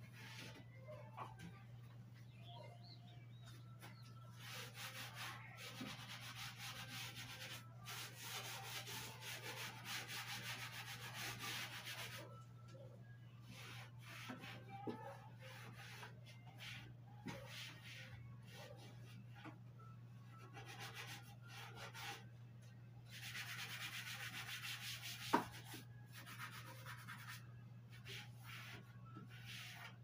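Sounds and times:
sponge scrubbing a shelf: 4.3s - 12.3s, 13.4s - 19.4s, 23.1s - 30.0s.

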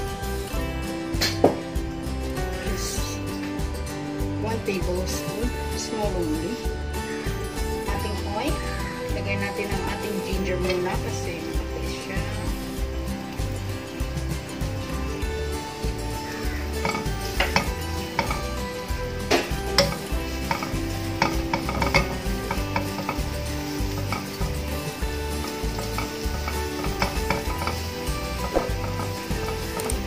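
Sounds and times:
ginger sizzling in hot oil: 0.0s - 30.0s
tongs clicking against pan: 16.2s - 18.6s, 19.2s - 30.0s.

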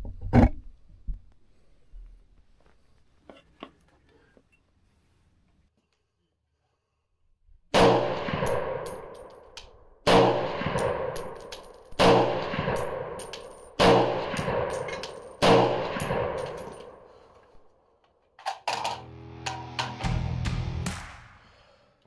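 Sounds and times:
rifle shots echoing: 7.8s - 17.3s.

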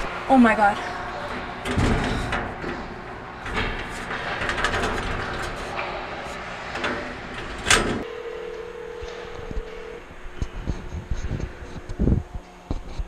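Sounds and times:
rustling and knocks in metal locker: 0.6s - 8.0s
phone ringing tone: 8.0s - 10.6s.

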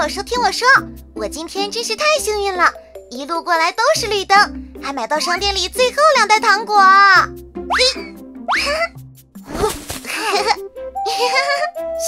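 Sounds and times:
cartoon background music: 0.0s - 12.0s
boing sound effects: 7.7s - 8.9s.

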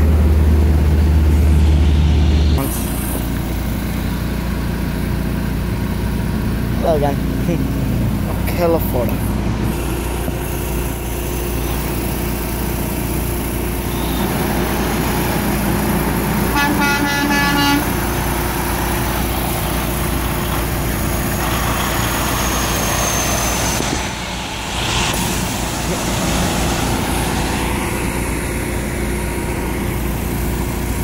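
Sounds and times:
passing truck road noise: 0.0s - 31.0s
truck air horn blast: 13.8s - 14.5s, 16.5s - 18.1s.

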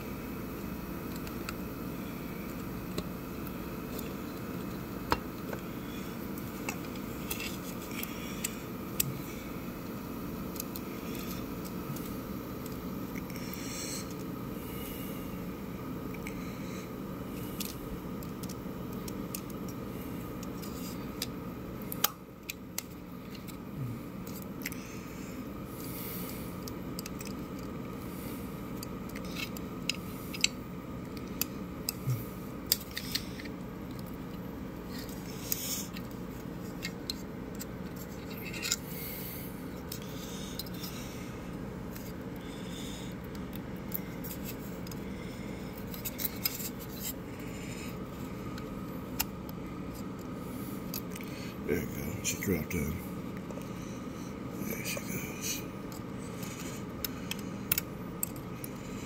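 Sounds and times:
plastic fan and tweezers clicking: 17.6s - 23.6s, 26.6s - 27.8s, 32.6s - 34.4s, 55.9s - 58.8s.

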